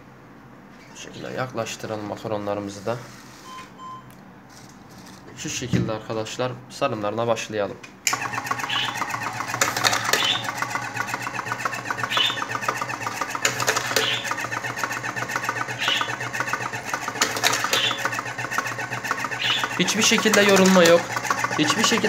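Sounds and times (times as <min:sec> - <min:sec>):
sharp machine stroke: 0:08.1 - 0:22.0
tube-filling machine whirring and ticking: 0:08.1 - 0:22.0.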